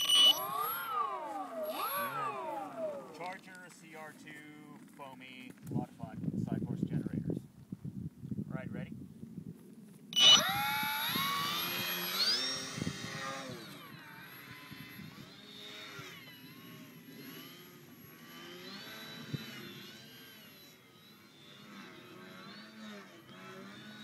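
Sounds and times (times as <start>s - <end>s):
model plane motor whining: 0.0s - 5.0s, 10.2s - 24.0s.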